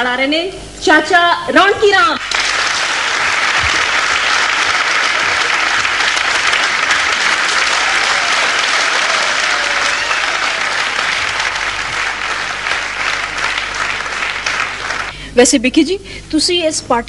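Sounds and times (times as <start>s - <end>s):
audience applauding: 2.2s - 15.1s.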